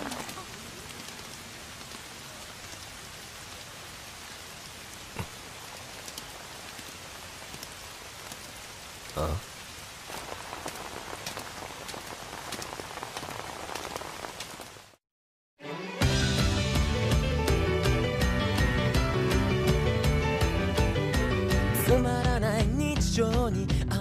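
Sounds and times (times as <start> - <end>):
rain falling on pavement: 0.0 - 15.0.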